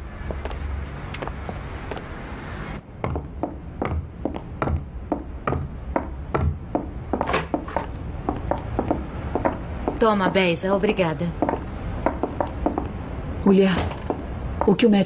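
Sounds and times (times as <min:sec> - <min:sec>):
sharp wooden knocks: 0:03.0 - 0:10.0, 0:11.4 - 0:12.9.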